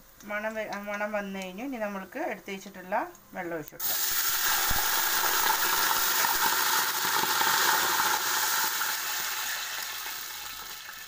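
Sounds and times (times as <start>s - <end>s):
water pouring into hot oil: 3.8s - 11.0s.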